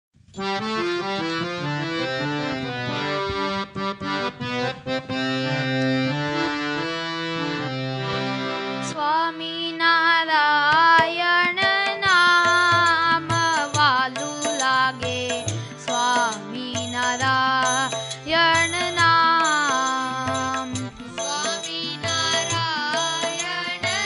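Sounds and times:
harmonium playing: 0:00.4 - 0:24.0
person singing: 0:08.8 - 0:24.0.

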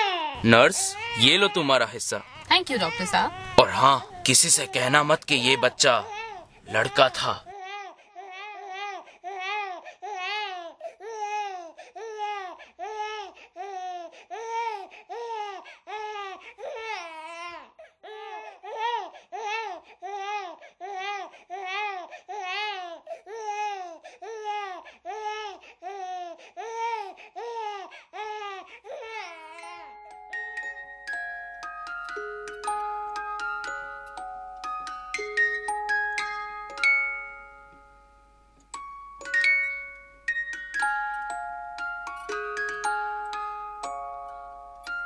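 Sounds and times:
baby calling: 0:00.0 - 0:07.6
chiming music notes: 0:29.6 - 0:45.0.

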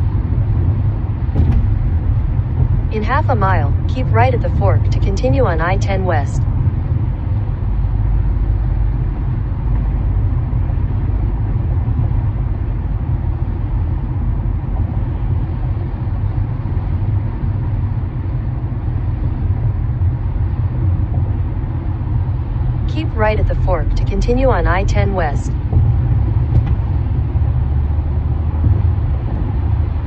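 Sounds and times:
car road noise at speed: 0:00.0 - 0:30.0.

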